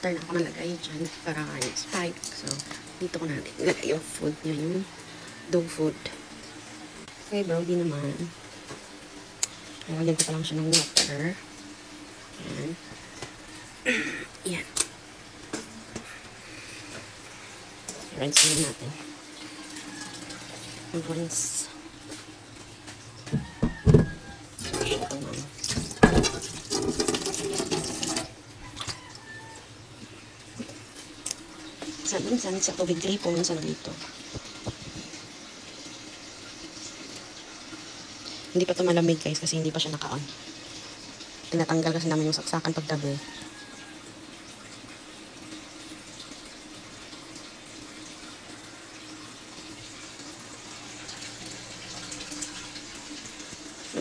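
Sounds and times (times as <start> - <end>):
tap water running into metal bowl: 0.0 - 13.8, 16.8 - 54.0
metal bowl knocking: 23.4 - 25.1.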